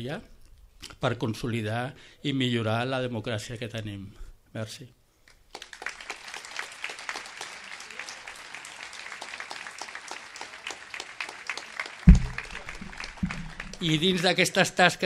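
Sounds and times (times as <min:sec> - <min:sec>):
audience applauding: 0:05.5 - 0:14.6
sudden low thump: 0:12.1 - 0:13.8.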